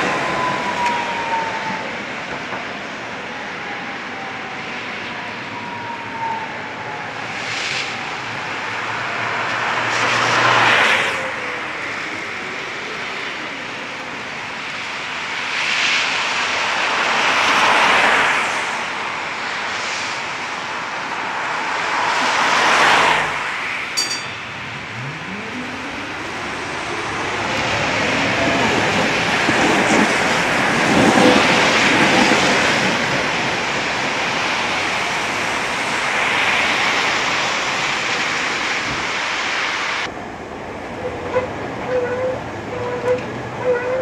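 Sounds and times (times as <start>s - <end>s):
cars passing on wet road: 0.0s - 41.8s
tram motor falling whine: 24.3s - 30.6s.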